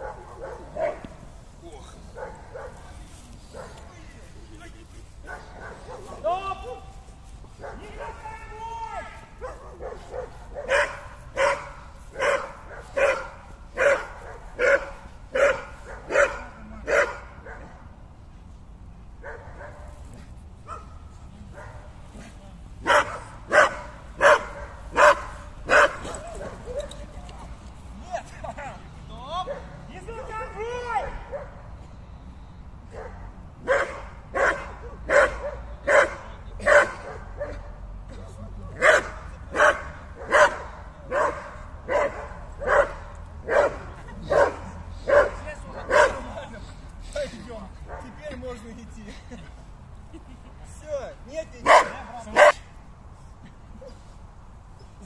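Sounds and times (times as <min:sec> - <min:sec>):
dog barking loudly: 0:00.0 - 0:01.1, 0:02.2 - 0:02.8, 0:03.5 - 0:03.9, 0:05.3 - 0:06.3, 0:07.6 - 0:08.2, 0:09.4 - 0:17.8, 0:19.2 - 0:19.9, 0:22.8 - 0:26.8, 0:31.0 - 0:31.6, 0:32.9 - 0:37.8, 0:38.8 - 0:46.3, 0:51.6 - 0:52.6.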